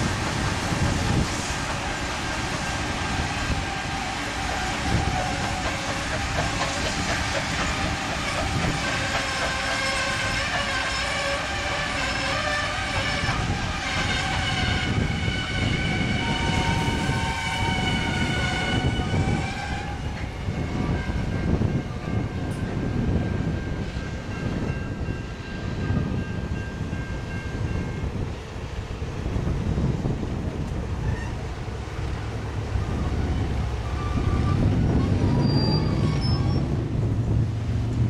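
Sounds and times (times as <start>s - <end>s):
train rumbling: 0.0s - 38.0s
steam locomotive whistle: 2.1s - 22.2s.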